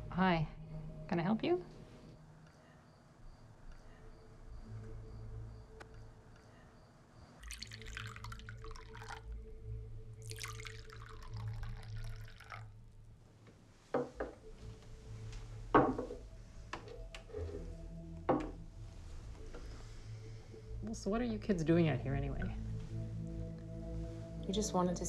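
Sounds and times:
liquid pouring: 0:07.4 - 0:09.4, 0:10.2 - 0:12.8
knocks on a table: 0:14.0 - 0:14.4, 0:15.8 - 0:16.2, 0:18.3 - 0:18.6.

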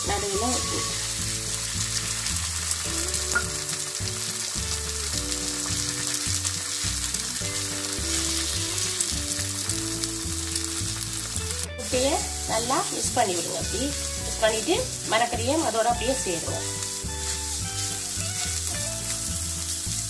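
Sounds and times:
eggs sizzling in oil: 0:00.0 - 0:20.0
spatula scraping vegetables: 0:16.0 - 0:20.0.

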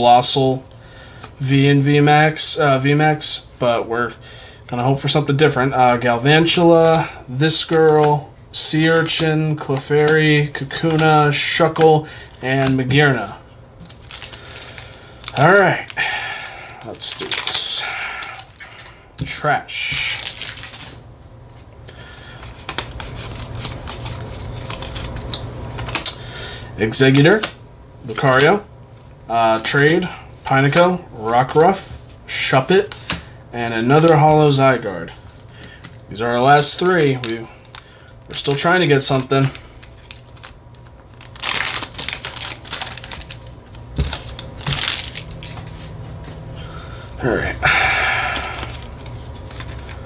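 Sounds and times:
foil wrapper crinkling: 0:06.1 - 0:21.0, 0:21.9 - 0:26.3, 0:33.8 - 0:46.2, 0:47.8 - 0:50.0
trading cards sliding and rubbing: 0:22.2 - 0:25.9.

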